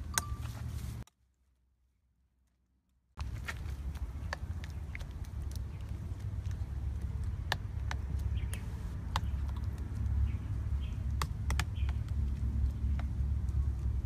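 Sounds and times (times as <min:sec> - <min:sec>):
steady low rumble: 0:03.2 - 0:14.0.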